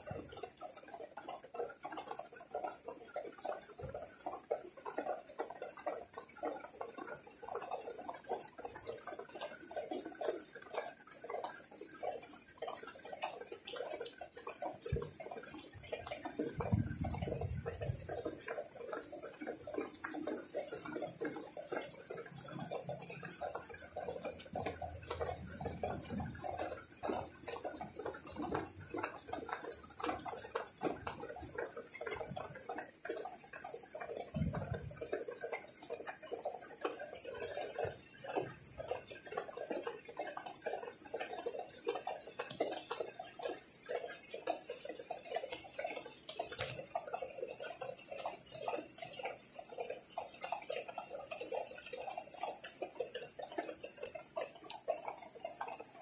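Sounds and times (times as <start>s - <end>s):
rain pattering on leaves and pots: 0.0s - 56.0s.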